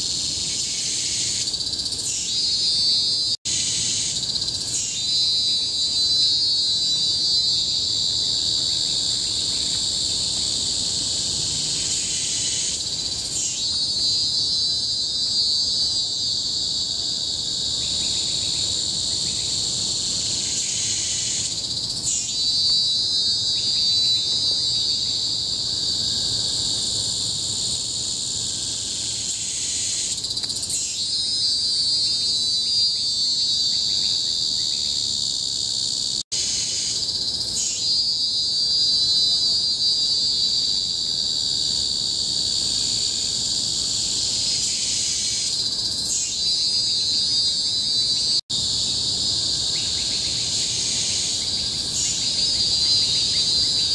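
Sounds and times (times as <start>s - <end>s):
cicadas shrilling: 0.0s - 53.9s
lower pulsing insect call: 0.0s - 53.9s.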